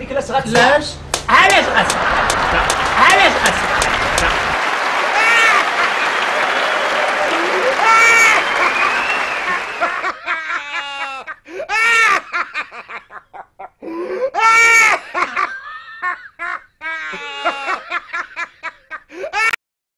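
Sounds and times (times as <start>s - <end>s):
person laughing high-pitched: 9.5s - 19.6s.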